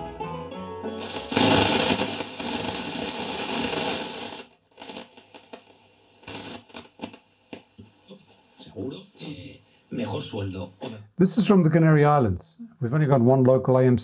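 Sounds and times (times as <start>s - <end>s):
radio crackles: 1.0s - 9.5s
radio static hiss: 1.0s - 11.0s.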